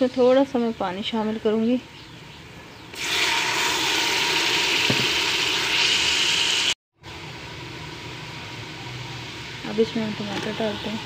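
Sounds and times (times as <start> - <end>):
loud sizzle of oil in pot: 2.9 - 11.0.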